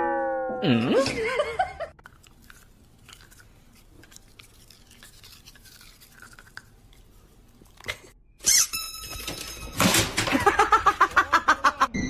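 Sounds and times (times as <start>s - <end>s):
toothbrush scrubbing teeth: 2.0s - 8.0s.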